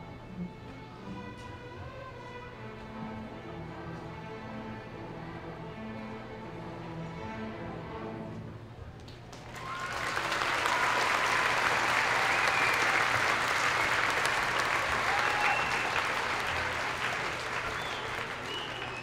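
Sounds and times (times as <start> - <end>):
audience applauding: 9.3 - 19.0
audience cheering: 9.4 - 19.0.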